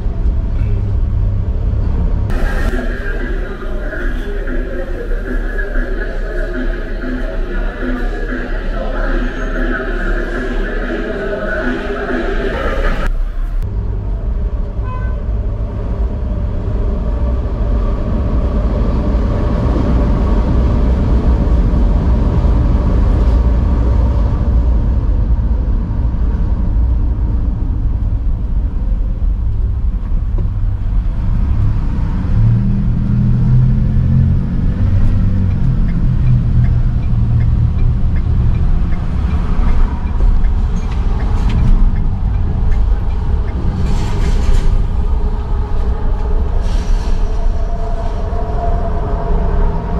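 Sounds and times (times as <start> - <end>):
heavy engine passing: 0.0 - 29.8
traffic engine rumble: 0.0 - 49.9.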